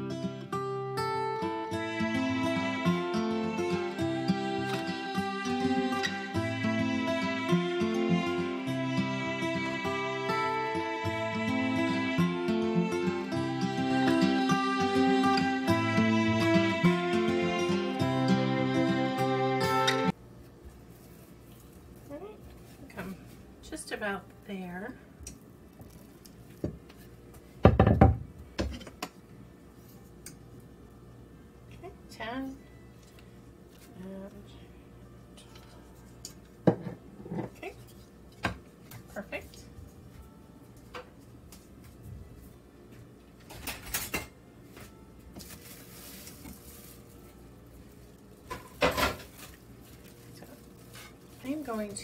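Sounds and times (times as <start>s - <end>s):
plastic wrap rustling: 20.4s - 23.5s, 25.6s - 27.2s, 44.8s - 52.0s
rolling pin knocking on countertop: 27.6s - 29.0s.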